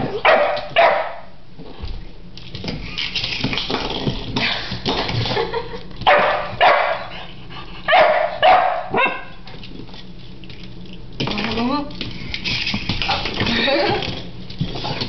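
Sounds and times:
dog barking: 0.2 - 1.3, 6.1 - 7.1, 7.9 - 9.4.

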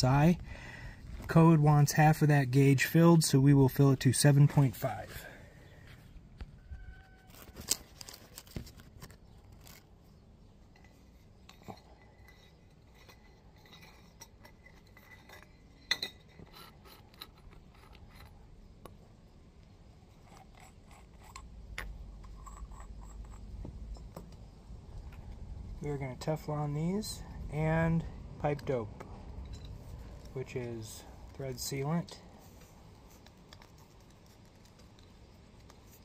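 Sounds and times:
clinks of iron pipe fittings: 10.8 - 17.3.

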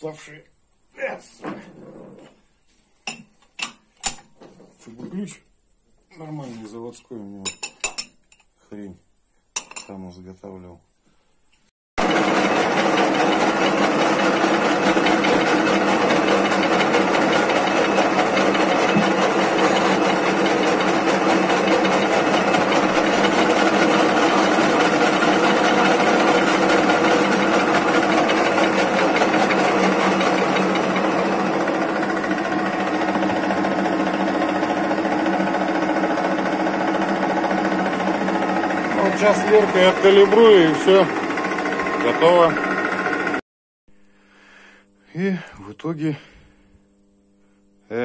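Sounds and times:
metal lathe running: 12.0 - 43.4.

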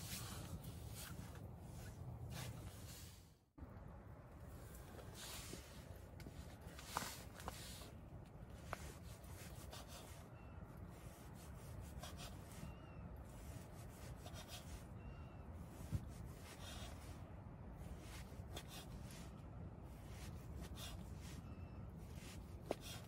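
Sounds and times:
steady low rumble: 0.0 - 9.5.

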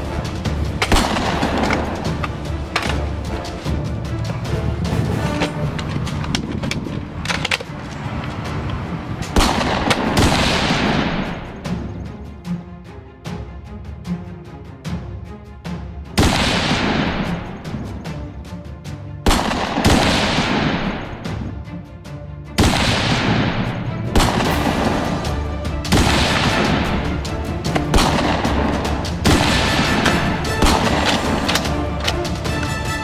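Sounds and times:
background music: 0.0 - 33.0
heavy cinematic gunshots: 0.8 - 2.0, 9.4 - 11.6, 16.2 - 17.6, 19.3 - 21.0, 22.6 - 27.2, 27.8 - 32.0.

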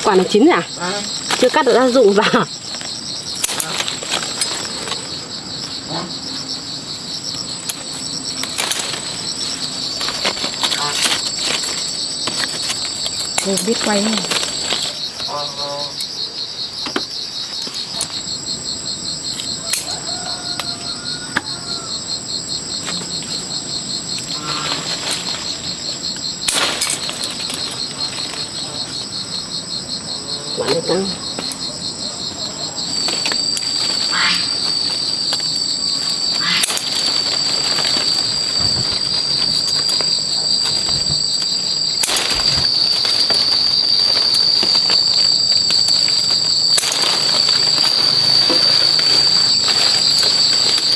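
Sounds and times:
insects trilling: 0.0 - 50.9.

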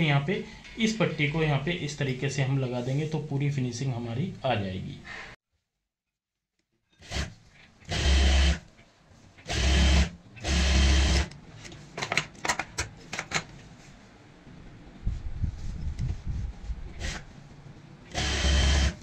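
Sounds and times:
sewing machine stitching: 18.1 - 19.0.

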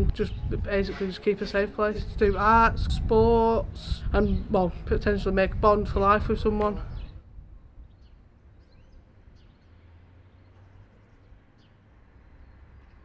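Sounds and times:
bird chirps: 7.8 - 13.0.

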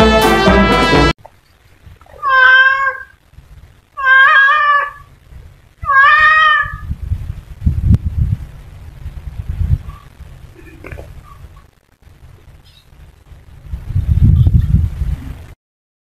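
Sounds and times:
cat meowing: 2.1 - 3.2, 4.0 - 5.1, 5.8 - 6.9.

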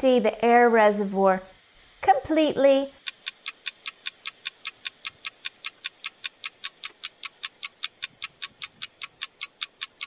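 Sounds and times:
fast clock ticking: 3.0 - 10.0.

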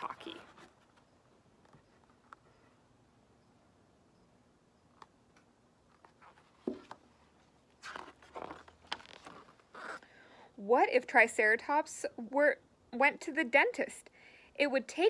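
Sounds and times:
paper rustling: 5.9 - 10.0
knock from handling a book: 6.6 - 7.0.

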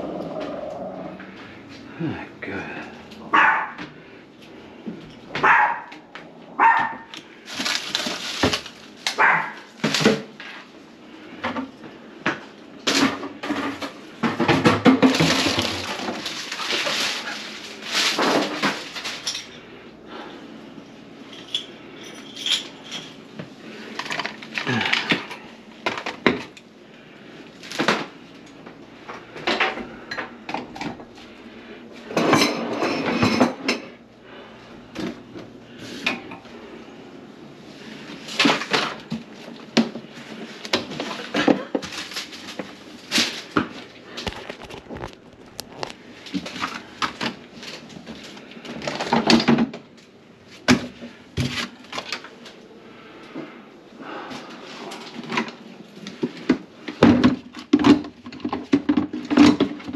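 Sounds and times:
plumbing parts clattering: 12.8 - 19.6.

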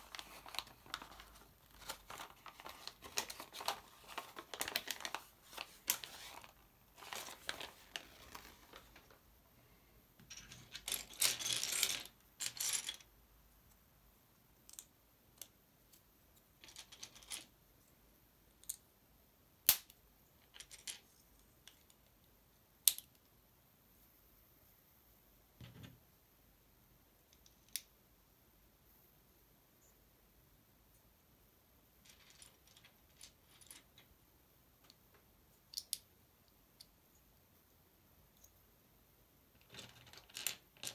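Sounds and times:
paper rustling: 0.0 - 9.2.

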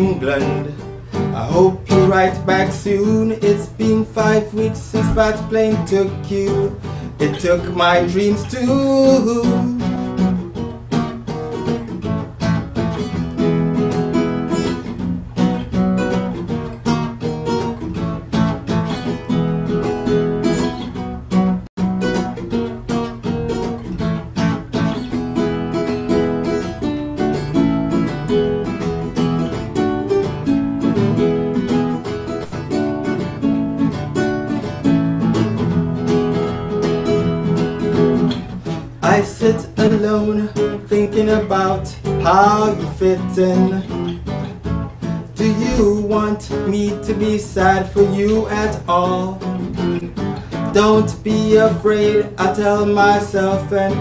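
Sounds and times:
man singing: 0.0 - 10.3, 39.0 - 44.2, 45.3 - 54.0
acoustic guitar playing: 0.0 - 54.0.

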